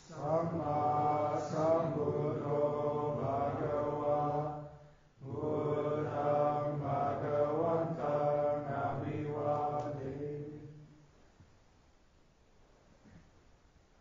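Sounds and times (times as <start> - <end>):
voices chanting: 0.0 - 10.8.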